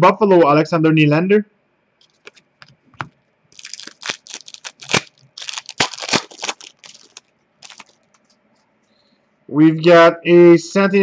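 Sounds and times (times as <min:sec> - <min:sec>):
foil wrapper tearing and crinkling: 0:03.5 - 0:08.0.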